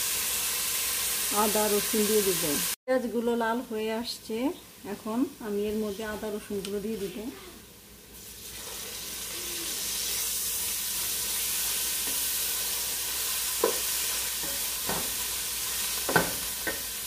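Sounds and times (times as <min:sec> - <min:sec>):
paste sizzling in hot oil: 0:00.0 - 0:02.8, 0:07.9 - 0:17.0
spoon knocking against pan: 0:13.6 - 0:15.2, 0:16.0 - 0:16.9.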